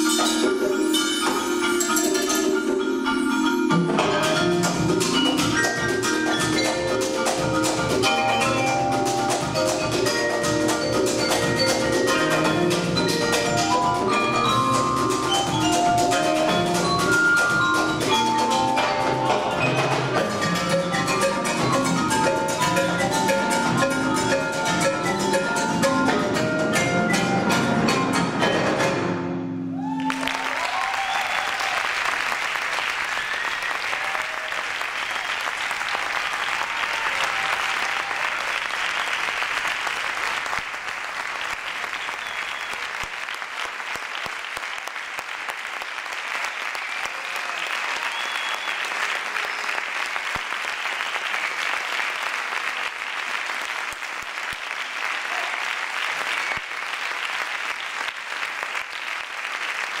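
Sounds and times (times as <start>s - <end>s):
audience cheering: 29.7s - 60.0s
audience applauding: 29.8s - 60.0s.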